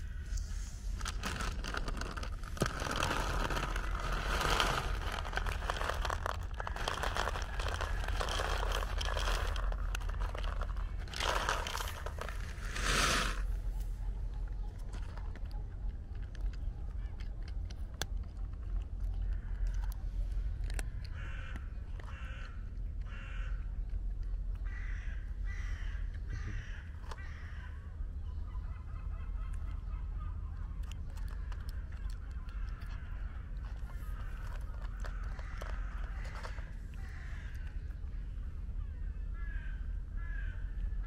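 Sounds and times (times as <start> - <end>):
steady low rumble: 0.0 - 28.7
cat crunching dry kibble: 0.3 - 25.4, 30.7 - 38.0
crows cawing: 21.1 - 23.7, 24.6 - 27.9, 32.0 - 37.9, 39.2 - 40.8.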